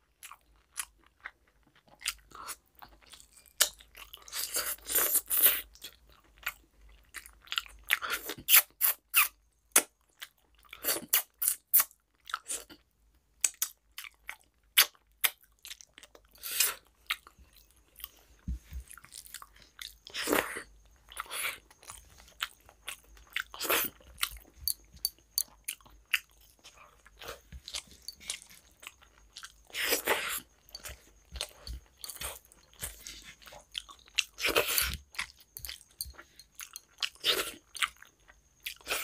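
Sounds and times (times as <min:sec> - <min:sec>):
wet chewing and mouth smacks: 0:13.4 - 0:39.0.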